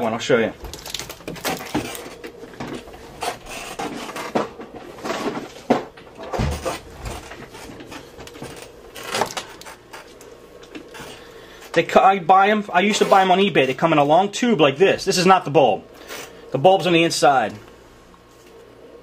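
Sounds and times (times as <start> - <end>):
faint hum: 0.0 - 19.0
hands rummaging with clatter: 0.6 - 11.8.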